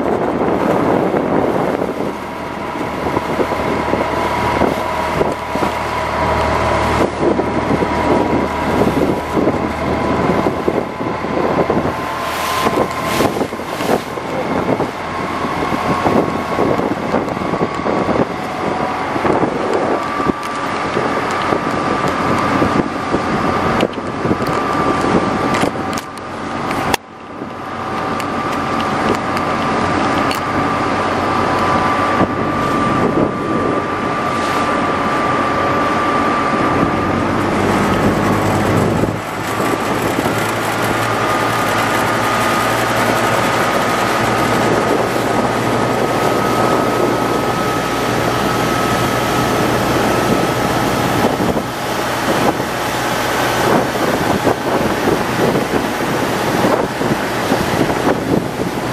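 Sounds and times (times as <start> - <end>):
boat engine running: 0.0 - 58.9
water rushing along hull: 0.0 - 58.9
wind on microphone: 0.0 - 58.9.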